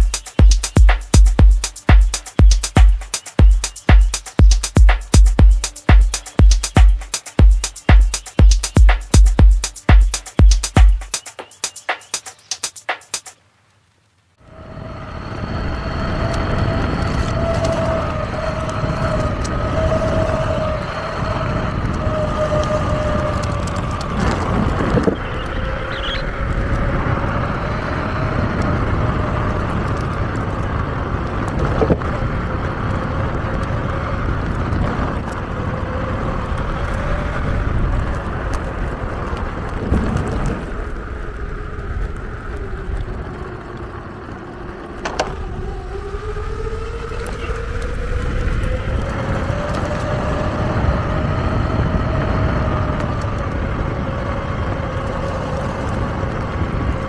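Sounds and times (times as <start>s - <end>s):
wheels rolling rumble: 14.4s - 57.0s
electric motors whining: 14.5s - 57.0s.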